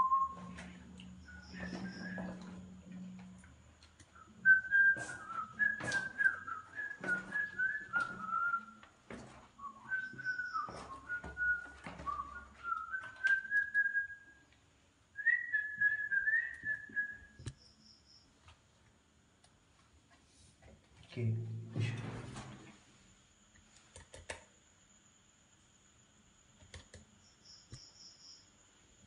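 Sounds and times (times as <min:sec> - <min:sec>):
person whistling a slow tune: 0:00.0 - 0:02.8, 0:04.2 - 0:14.4, 0:15.2 - 0:17.5.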